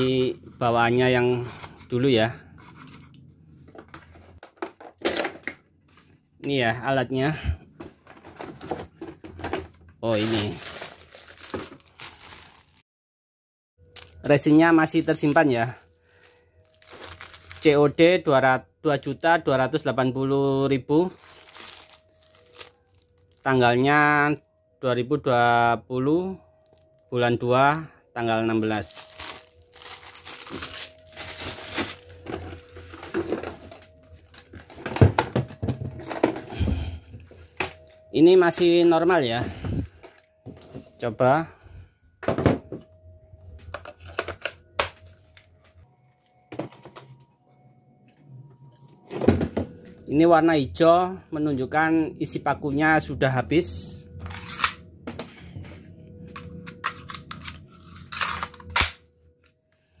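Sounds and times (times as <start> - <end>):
plastic wrapping crinkling: 10.1 - 12.8, 14.0 - 18.0, 21.1 - 23.6, 26.6 - 27.0, 28.5 - 35.2.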